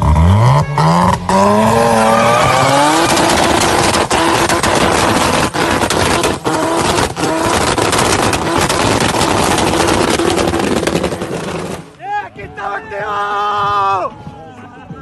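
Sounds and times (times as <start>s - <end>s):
rotary engine at high revs: 0.0s - 11.9s
exhaust crackle: 0.0s - 12.0s.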